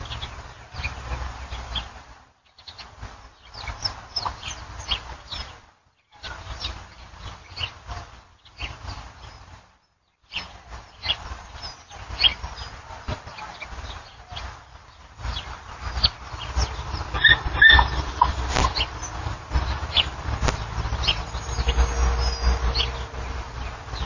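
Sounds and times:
birds chirping: 0.0s - 24.0s
low rumble: 15.4s - 24.0s.

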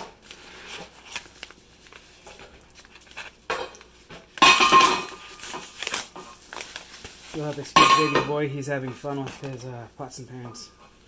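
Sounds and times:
paper rustling: 0.0s - 9.8s.

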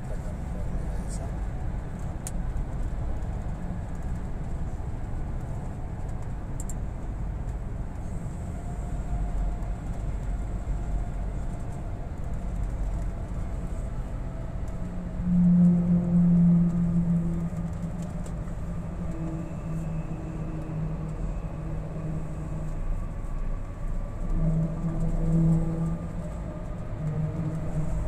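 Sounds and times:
engine and tyre rumble: 0.0s - 28.0s
low hum: 12.4s - 28.0s.

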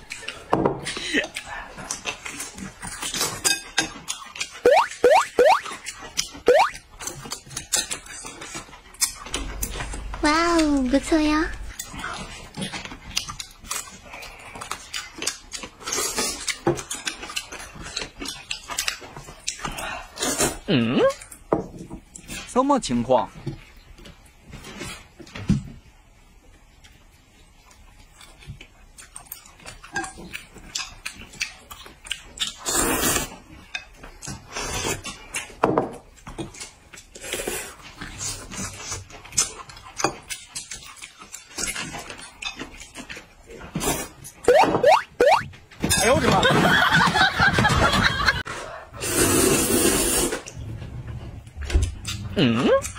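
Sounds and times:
chewing: 0.0s - 21.5s, 26.5s - 45.6s, 51.4s - 52.9s
wet chewing smacks and clicks: 11.7s - 19.8s, 26.8s - 32.7s, 37.8s - 43.4s
noodle slurping: 49.0s - 50.5s.

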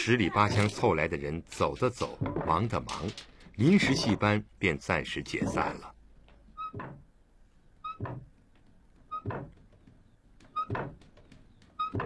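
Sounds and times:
wooden squeak: 5.4s - 7.1s, 7.7s - 12.0s.

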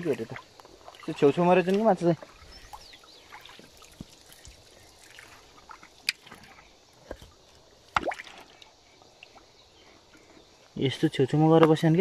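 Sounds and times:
water drips and plops: 0.0s - 9.5s.

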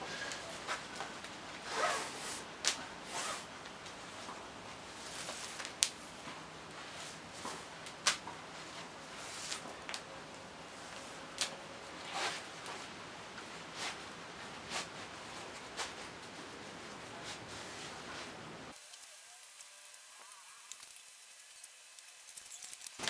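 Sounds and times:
rope swishing against webbing: 1.7s - 3.5s, 10.9s - 12.8s, 13.7s - 14.0s, 14.6s - 16.4s.

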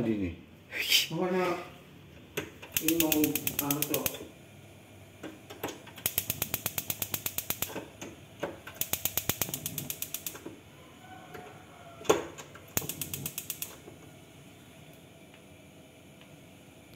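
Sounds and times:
gas hob igniter clicking: 2.3s - 4.4s, 5.2s - 10.6s, 11.3s - 14.1s.

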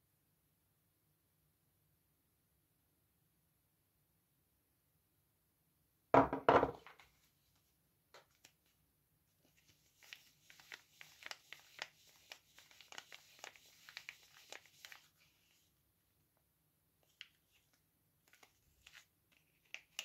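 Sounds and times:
soap bar knocking on wooden table: 6.2s - 6.9s
paper wrapper crinkling: 9.4s - 15.7s, 17.0s - 20.0s.

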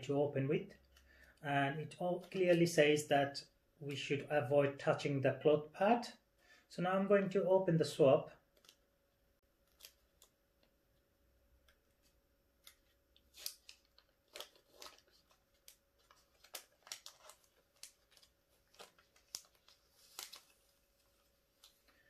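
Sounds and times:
wrapper crackling as peeled open: 8.5s - 8.8s, 9.6s - 10.7s, 12.0s - 21.8s.

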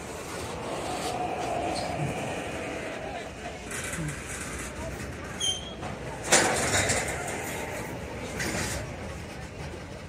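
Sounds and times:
freight train wheels on rails: 0.0s - 10.0s
train car clanks: 3.2s - 10.0s.

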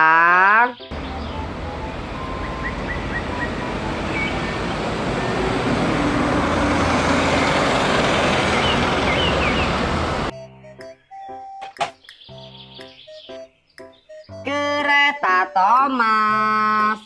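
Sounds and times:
birds chirping faintly: 0.3s - 5.5s, 10.6s - 17.0s
bus driving past: 0.9s - 10.3s.

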